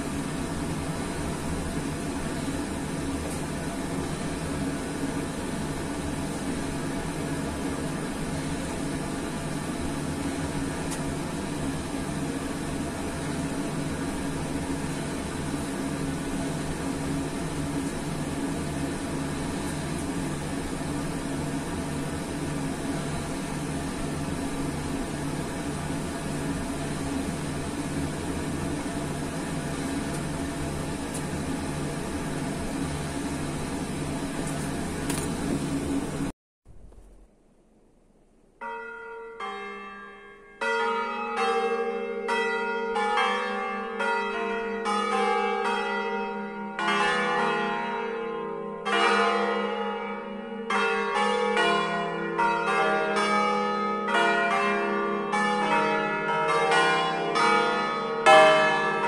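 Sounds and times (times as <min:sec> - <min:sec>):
church bells ringing: 0:38.6 - 0:59.0.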